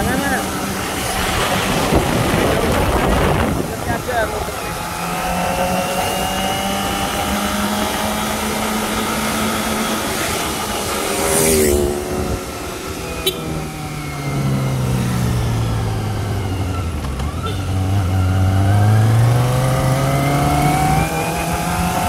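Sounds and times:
motorcycle engine cruising: 0:00.0 - 0:22.0
motorcycle passing by: 0:00.0 - 0:22.0
wind noise on microphone: 0:00.8 - 0:04.6.

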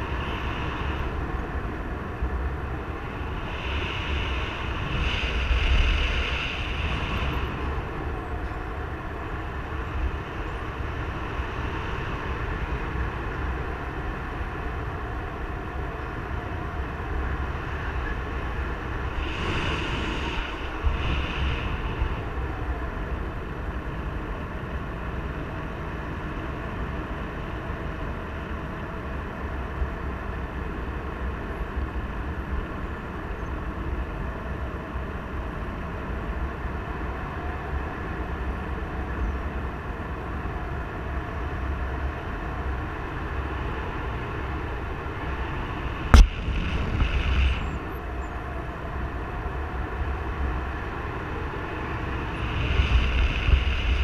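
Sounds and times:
wind buffeting microphone: 0:00.0 - 0:32.7, 0:33.8 - 0:54.0.

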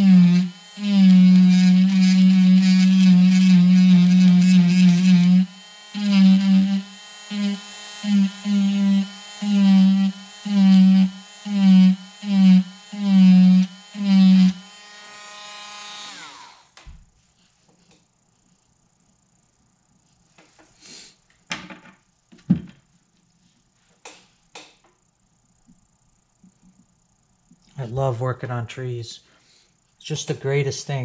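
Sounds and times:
rotary tool buzzing: 0:00.0 - 0:16.9.

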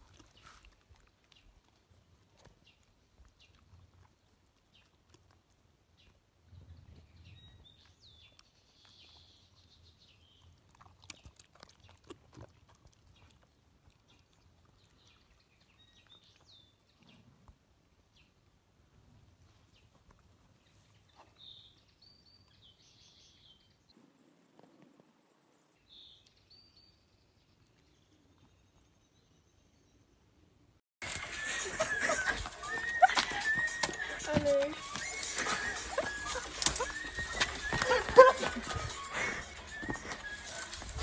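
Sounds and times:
puppy panting: 0:31.0 - 0:41.0.

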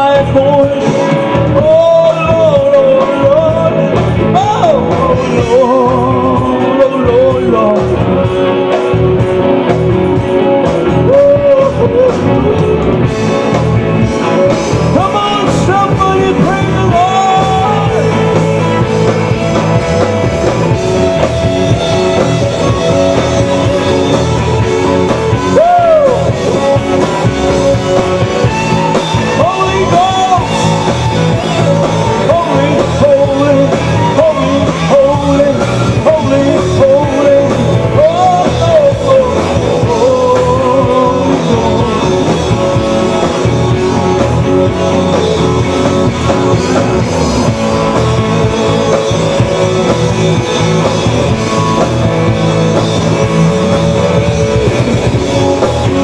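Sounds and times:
man singing: 0:00.0 - 0:09.7, 0:10.4 - 0:56.0
bass guitar: 0:00.0 - 0:56.0
electric guitar: 0:00.0 - 0:56.0.

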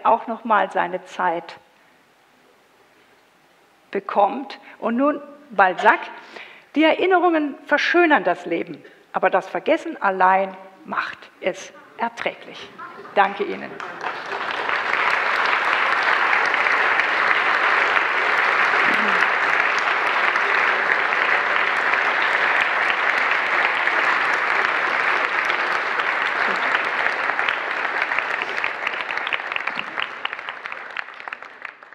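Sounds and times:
audience applauding: 0:12.8 - 0:31.9.

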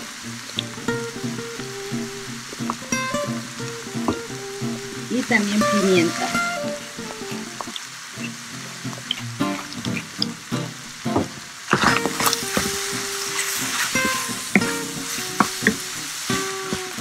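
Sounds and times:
meat sizzling in a frying pan: 0:00.0 - 0:17.0
utensil scraping a pan: 0:11.7 - 0:16.8.

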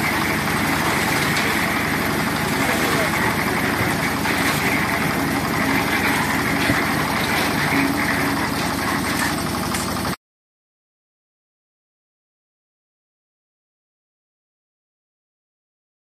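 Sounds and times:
concrete mixer running: 0:00.0 - 0:10.2.

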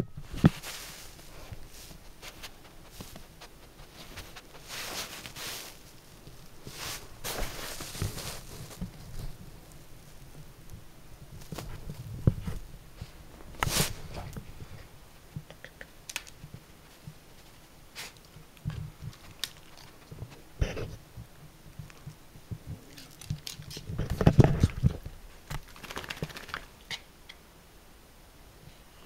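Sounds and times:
bumps and rustling: 0:00.0 - 0:26.7
dog claws pattering on floor: 0:18.2 - 0:20.4, 0:22.9 - 0:27.0.

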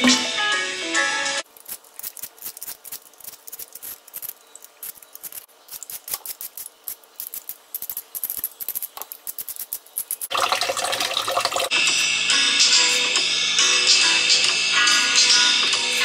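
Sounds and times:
background music: 0:00.0 - 0:01.4, 0:10.4 - 0:16.0
vegetable peeler scraping: 0:01.4 - 0:10.3.

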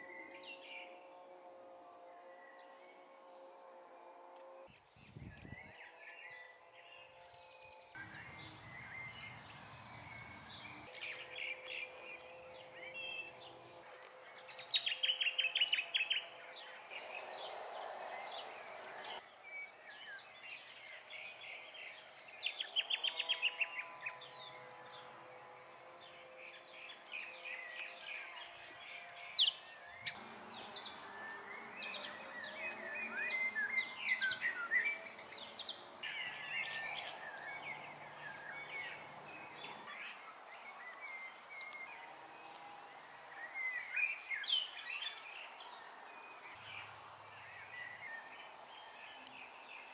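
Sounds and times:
wild birds chirping: 0:00.0 - 0:49.9.

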